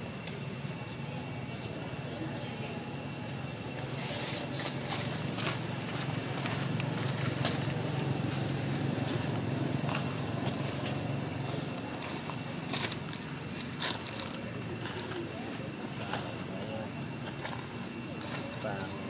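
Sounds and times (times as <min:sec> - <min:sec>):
low engine hum: 0:00.0 - 0:19.0.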